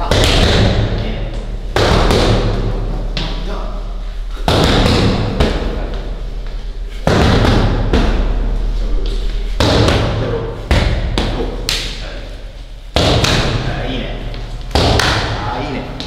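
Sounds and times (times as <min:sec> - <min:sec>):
punches thudding on focus mitts: 0:01.7 - 0:02.8, 0:04.4 - 0:05.8, 0:07.0 - 0:08.3, 0:09.6 - 0:11.4, 0:13.0 - 0:13.6.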